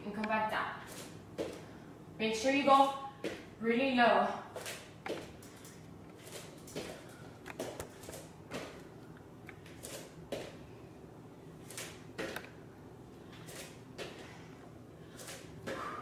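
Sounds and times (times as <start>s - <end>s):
bare feet thudding on mat: 1.0s - 1.7s, 3.2s - 3.5s.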